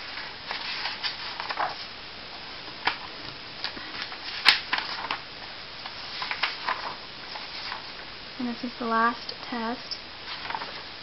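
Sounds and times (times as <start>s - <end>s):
paper pages rustling: 0.0s - 2.0s, 2.8s - 5.2s, 5.8s - 8.0s, 10.2s - 10.9s
sharp paper snap: 2.8s - 5.2s, 5.8s - 7.0s.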